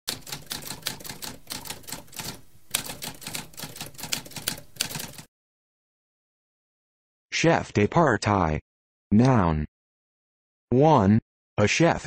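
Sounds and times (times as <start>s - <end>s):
typewriter keys striking: 0.1s - 5.3s.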